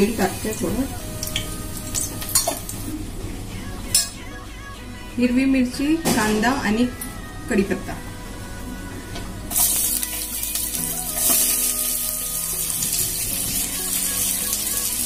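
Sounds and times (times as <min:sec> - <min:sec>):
vegetables sizzling in hot oil: 0:00.0 - 0:02.9, 0:09.5 - 0:15.0
faint background music: 0:00.0 - 0:15.0.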